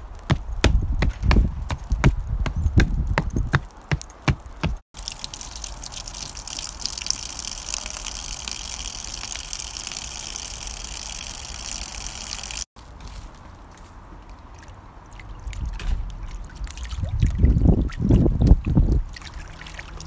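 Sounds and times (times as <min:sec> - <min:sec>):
footsteps on wooden board: 0:00.3 - 0:04.8
water pouring into soil: 0:05.0 - 0:12.7, 0:14.6 - 0:20.0.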